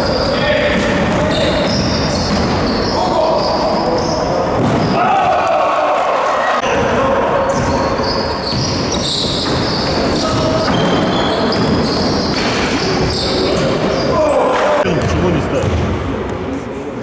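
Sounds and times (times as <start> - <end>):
sneakers squeaking: 0.0 - 5.0, 6.6 - 15.9
basketball bouncing on court: 7.5 - 13.3, 14.9 - 16.0.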